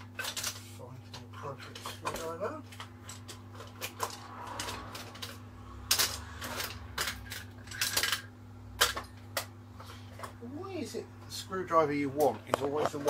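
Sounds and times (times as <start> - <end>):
steady low hum: 0.0 - 13.0
metal tools clinking: 1.5 - 8.3.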